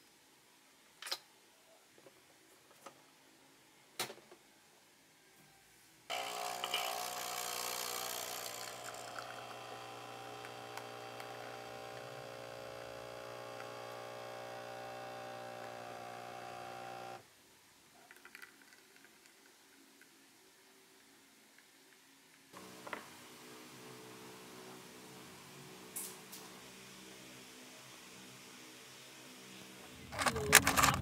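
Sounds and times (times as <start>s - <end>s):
coffee dripping into glass jug: 6.1s - 17.1s, 18.1s - 19.4s
coffee machine pump buzzing: 6.1s - 17.2s, 22.6s - 26.4s.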